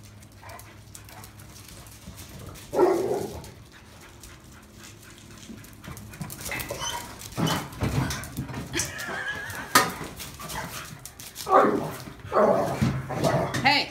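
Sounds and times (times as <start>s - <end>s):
dog barking: 2.7s - 3.3s.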